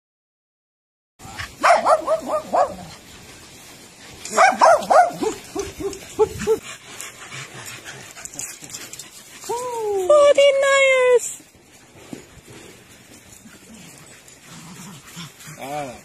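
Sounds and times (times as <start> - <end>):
dog yipping: 1.6 - 2.8, 4.3 - 6.6.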